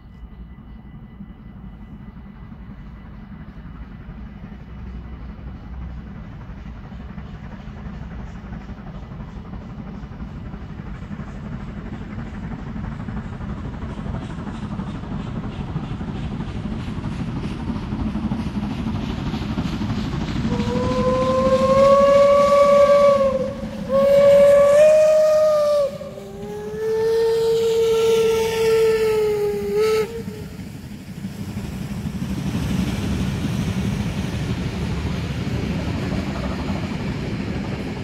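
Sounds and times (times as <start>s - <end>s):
passenger coaches rolling past: 0.0s - 38.0s
train rumble: 0.0s - 38.0s
steam locomotive whistle blasts: 20.4s - 30.8s.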